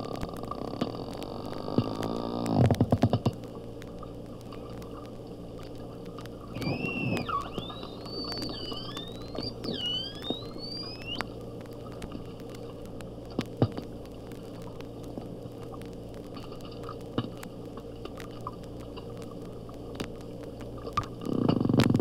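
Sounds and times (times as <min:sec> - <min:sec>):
hydrophone background hum: 0:00.0 - 0:22.0
rapid train of dolphin clicks: 0:00.0 - 0:22.0
dolphin clicks: 0:00.2 - 0:12.7
dolphin whistle gliding up: 0:06.5 - 0:11.3.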